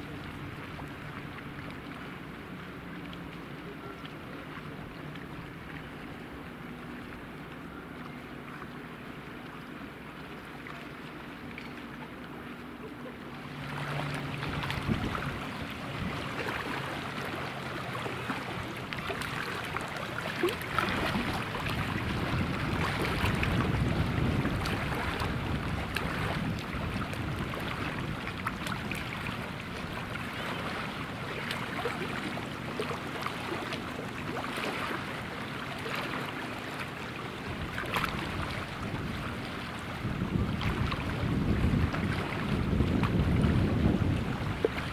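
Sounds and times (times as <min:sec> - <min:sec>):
propeller aircraft droning: 0:00.0 - 0:44.7
wind noise on microphone: 0:14.3 - 0:16.7, 0:20.6 - 0:31.3, 0:37.4 - 0:44.9.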